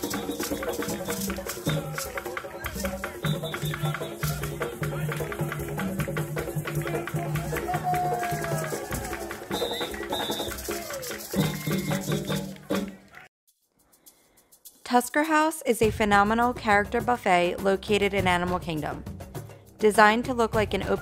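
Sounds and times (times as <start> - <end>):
hand drums: 0.0 - 13.1
shaker: 0.0 - 21.0.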